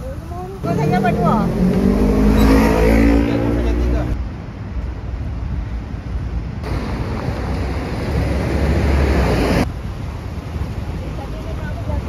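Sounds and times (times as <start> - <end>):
street traffic rumble: 0.0 - 12.0
bus passing close by: 6.6 - 9.7.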